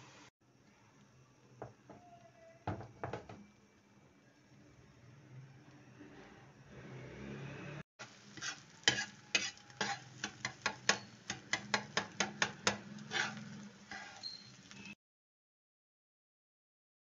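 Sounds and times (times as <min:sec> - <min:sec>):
egg sizzling: 0:08.0 - 0:15.0
spatula scraping a frying pan: 0:08.0 - 0:15.0.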